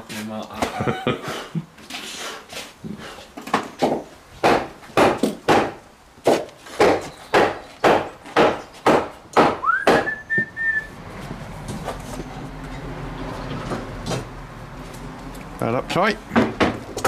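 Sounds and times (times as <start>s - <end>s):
sharp knocks: 3.5s - 10.5s, 16.3s - 17.0s
person whistling rising note: 9.6s - 11.0s.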